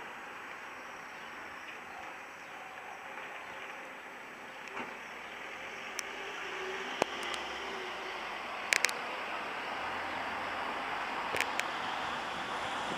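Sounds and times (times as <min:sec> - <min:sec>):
distant traffic: 0:00.0 - 0:12.9
sharp clicks: 0:07.0 - 0:07.5, 0:08.7 - 0:09.0, 0:11.3 - 0:11.7.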